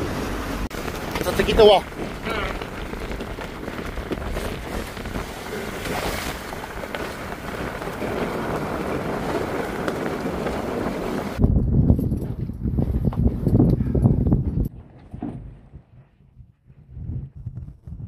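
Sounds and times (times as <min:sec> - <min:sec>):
sea water washing around boat: 0:00.0 - 0:11.4
wind noise on microphone: 0:00.0 - 0:18.0.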